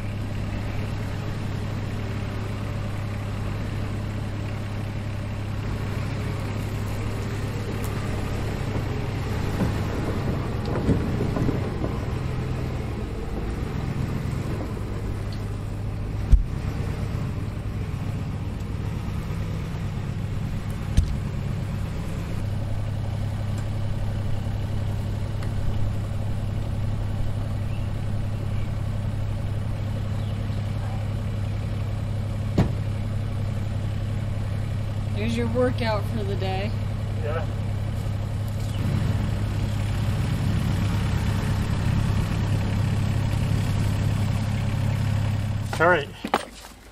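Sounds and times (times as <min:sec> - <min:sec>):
bus engine running: 0:00.0 - 0:46.9
sharp knocks: 0:32.5 - 0:32.9.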